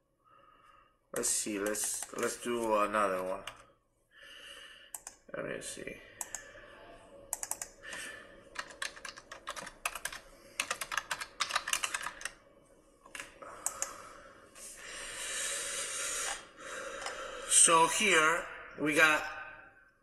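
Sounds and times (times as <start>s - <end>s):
typing on computer keyboard: 1.2s - 2.7s, 7.3s - 12.4s, 13.1s - 14.0s.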